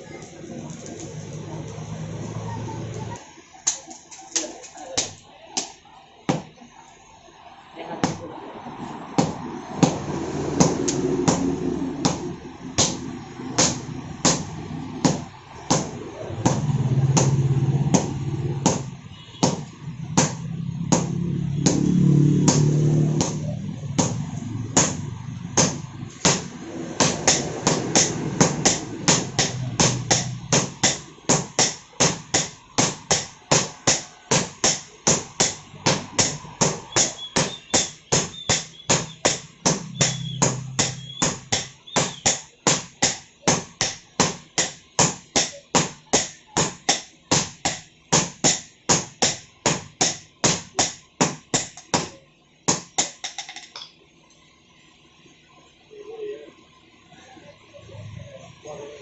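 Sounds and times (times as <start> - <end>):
hammers striking steel on anvil: 9.1 - 54.0.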